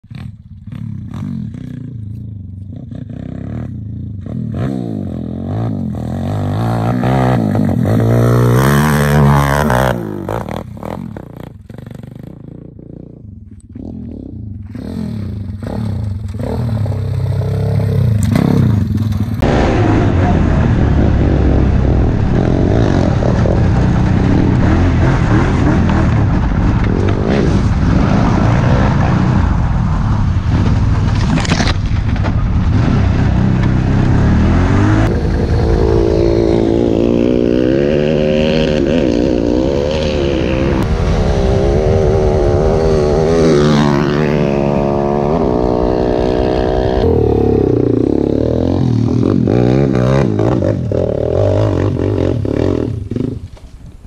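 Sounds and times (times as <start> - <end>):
motorbike engine revving: 0.0 - 53.6
loud rushing noise: 14.8 - 54.0.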